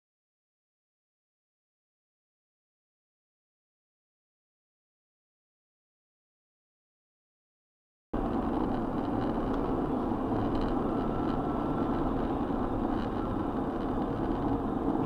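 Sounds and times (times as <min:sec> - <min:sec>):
engine and road noise: 0:08.2 - 0:15.0.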